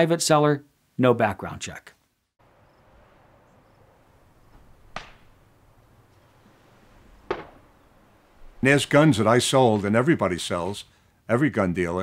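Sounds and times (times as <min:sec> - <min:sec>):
outdoor wind: 0:00.0 - 0:12.0
flag flapping: 0:02.8 - 0:10.8.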